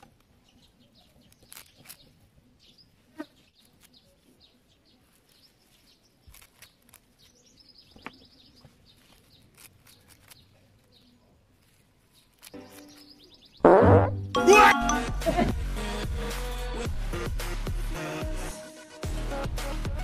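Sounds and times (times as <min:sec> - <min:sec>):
faint bird chirping: 0:00.1 - 0:13.7
blade snipping leaves: 0:01.2 - 0:02.2, 0:05.2 - 0:07.6, 0:09.0 - 0:11.0.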